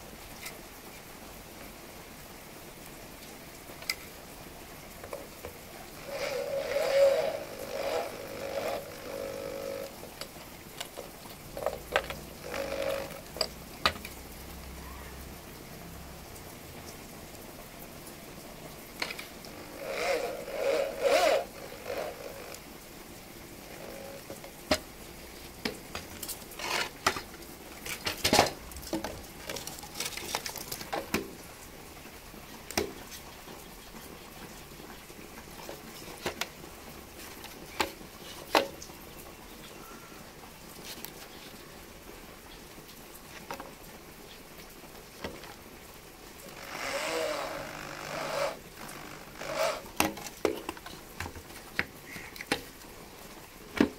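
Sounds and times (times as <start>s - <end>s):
rattling: 5.9s - 14.1s, 19.0s - 22.7s, 23.5s - 24.9s, 46.4s - 50.2s.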